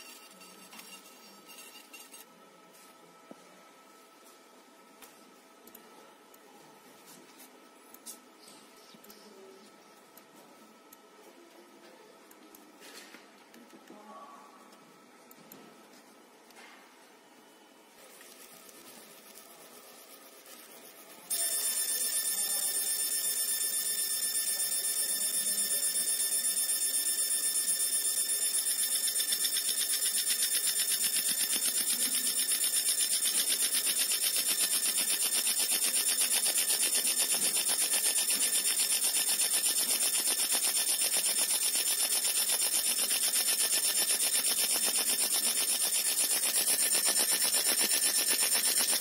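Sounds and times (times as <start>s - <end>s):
laser machine high-pitched whine: 0.0s - 5.8s, 17.4s - 49.0s.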